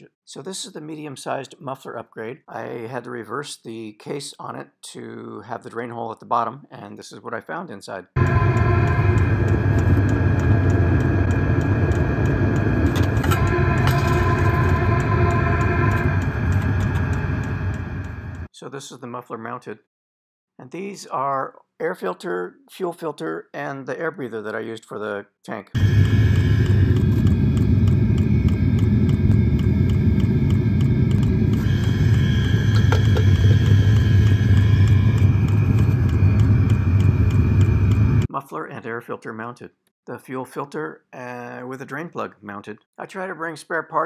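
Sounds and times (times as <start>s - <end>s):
heater combustion and blower rumble: 8.2s - 18.5s, 25.8s - 38.3s
faint regular pump ticks: 9.1s - 13.5s, 25.8s - 38.3s.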